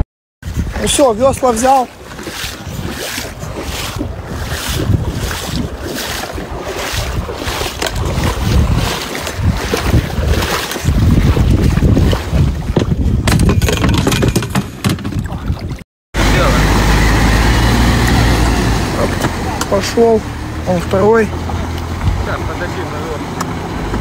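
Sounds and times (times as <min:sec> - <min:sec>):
wind buffeting microphone: 0:00.4 - 0:15.8, 0:21.0 - 0:24.0.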